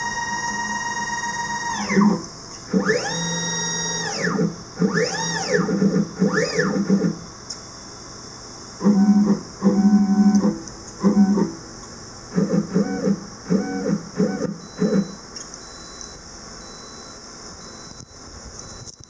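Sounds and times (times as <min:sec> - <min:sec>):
stepper motors whining: 0:00.0 - 0:07.2, 0:08.8 - 0:11.6, 0:12.3 - 0:15.2.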